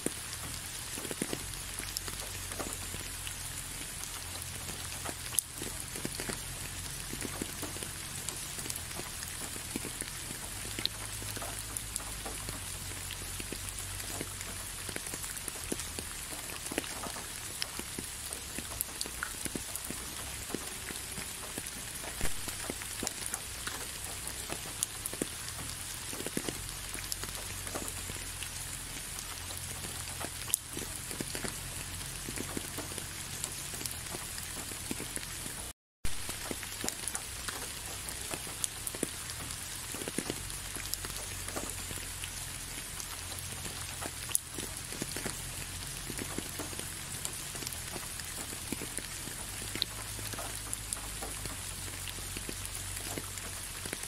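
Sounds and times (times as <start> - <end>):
raindrops landing close by: 0.0 - 54.0
steady rain falling: 0.0 - 54.0.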